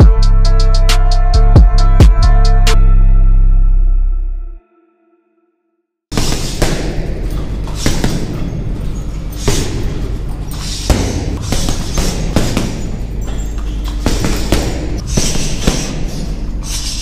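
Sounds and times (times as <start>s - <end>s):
gloves punching heavy bag: 6.1s - 17.0s.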